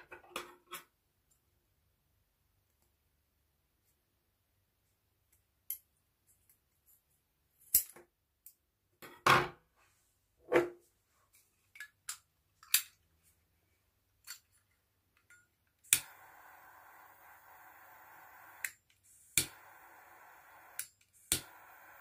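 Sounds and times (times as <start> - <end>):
lighter click: 15.9 - 18.8, 19.4 - 22.0.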